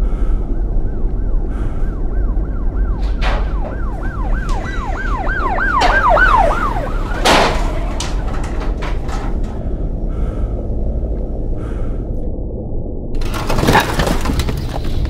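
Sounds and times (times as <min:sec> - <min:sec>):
steady low hum: 0:00.0 - 0:13.4
siren yelping: 0:00.1 - 0:07.4.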